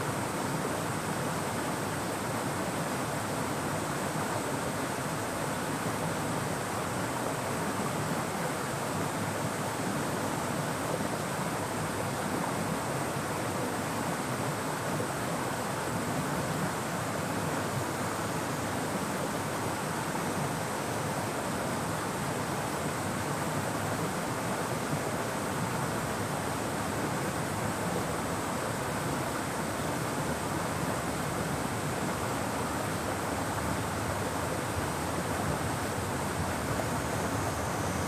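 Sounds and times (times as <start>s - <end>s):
river water rushing: 0.0s - 38.0s
high cicada drone: 26.2s - 38.0s.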